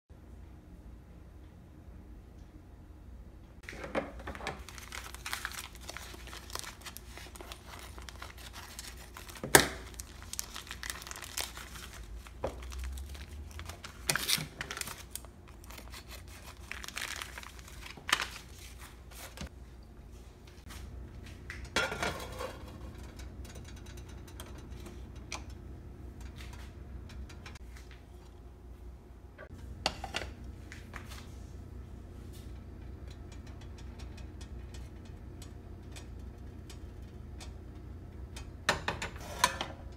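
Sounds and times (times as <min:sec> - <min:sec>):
plastic bags crinkling and tearing: 0:04.5 - 0:19.4.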